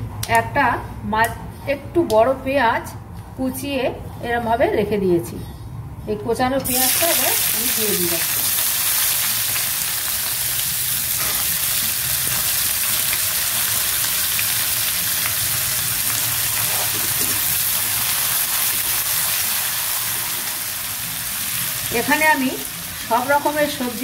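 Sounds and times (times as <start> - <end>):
onions sizzling in hot oil: 6.7 - 24.0.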